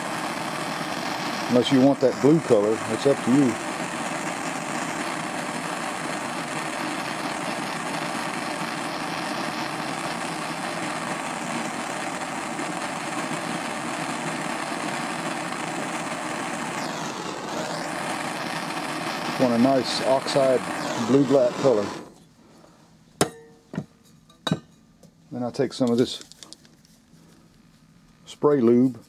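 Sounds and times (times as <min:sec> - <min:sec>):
propane torch hissing: 0:00.0 - 0:22.7.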